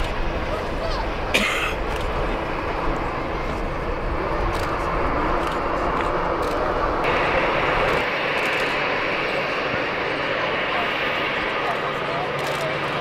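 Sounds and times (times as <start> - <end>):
distant jet engine noise: 0.0 - 13.0.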